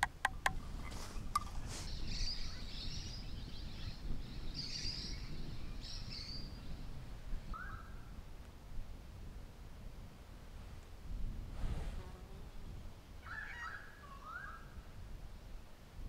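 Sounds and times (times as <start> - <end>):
birds twittering and chirping: 0.0 - 7.9, 13.2 - 14.7.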